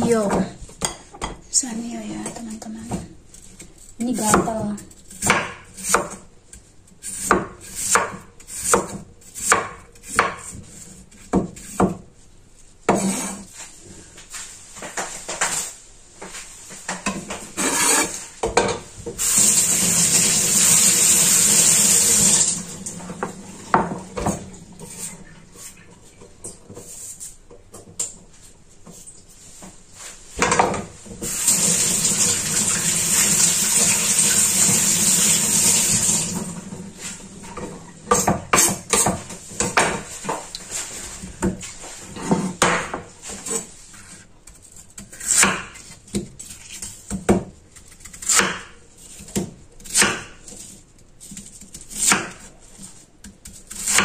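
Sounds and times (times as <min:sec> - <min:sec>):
kitchen tap running: 0:19.2 - 0:24.4, 0:31.2 - 0:36.8.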